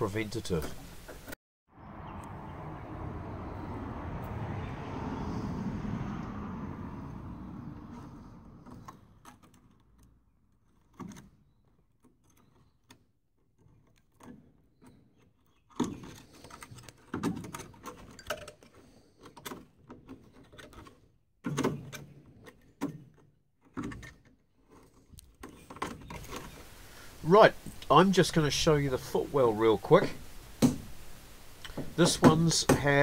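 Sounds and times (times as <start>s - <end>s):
sharp knocks: 30.6s - 30.9s.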